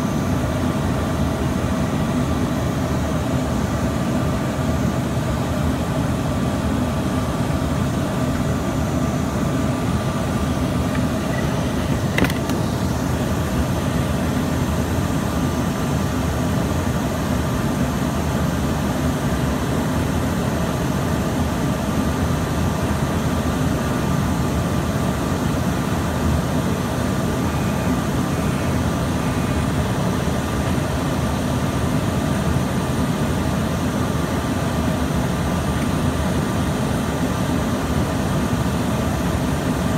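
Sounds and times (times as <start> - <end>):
jet engine cabin drone: 0.0 - 39.9
steady whine: 0.0 - 39.9.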